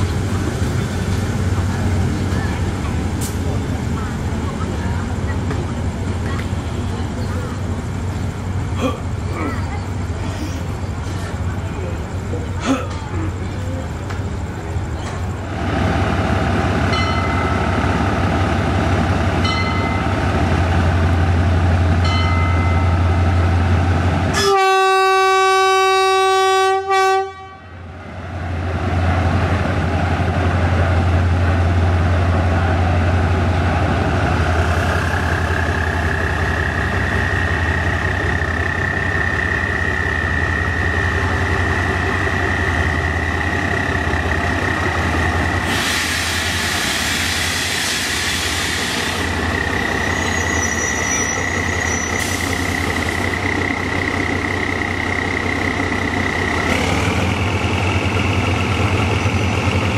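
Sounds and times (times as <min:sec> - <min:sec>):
locomotive engine drone: 0:00.0 - 0:59.9
loud train horn blast: 0:24.3 - 0:27.8.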